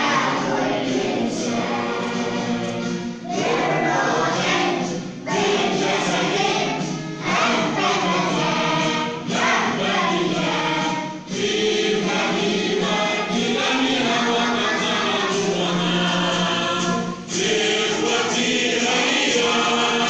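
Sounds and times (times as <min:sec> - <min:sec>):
children's choir singing: 0:00.0 - 0:20.0.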